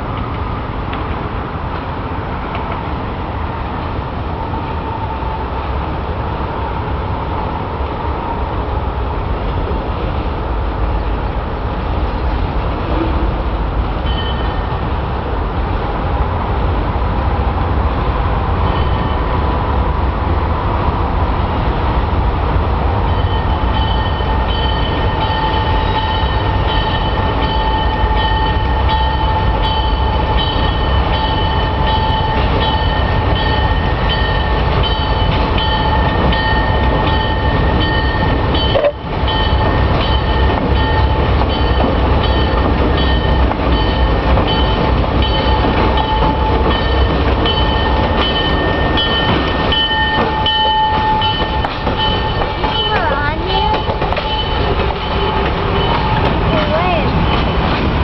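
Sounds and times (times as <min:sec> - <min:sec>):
diesel locomotive rumble: 0:00.0 - 0:58.0
high ringing tones: 0:14.0 - 0:14.7, 0:23.1 - 0:57.5.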